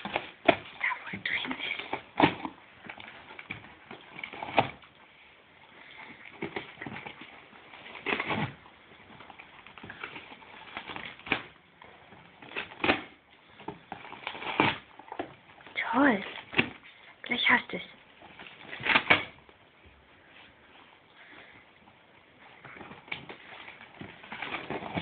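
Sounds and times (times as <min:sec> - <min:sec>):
dog ripping cardboard: 0:00.0 - 0:00.7, 0:01.6 - 0:04.9, 0:05.8 - 0:11.6, 0:12.3 - 0:16.9, 0:18.4 - 0:19.4, 0:22.6 - 0:25.0.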